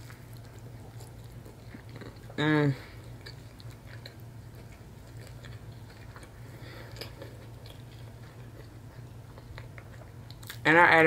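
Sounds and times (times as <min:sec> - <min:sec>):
person chewing: 0:00.0 - 0:10.7.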